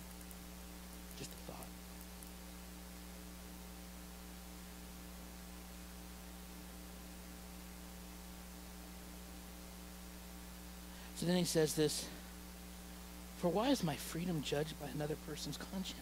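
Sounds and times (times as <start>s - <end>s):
electrical mains hum: 0.0s - 16.0s
faint hiss: 0.0s - 16.0s.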